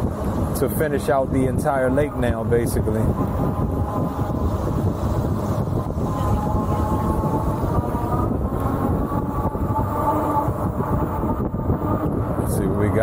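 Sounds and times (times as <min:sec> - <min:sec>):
wind rumble on microphone: 0:00.0 - 0:13.0
electric bike motor whining: 0:02.9 - 0:13.0.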